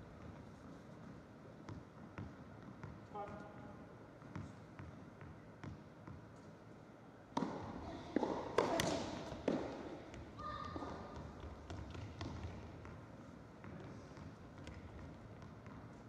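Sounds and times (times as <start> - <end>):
rackets striking tennis ball: 7.3 - 12.4.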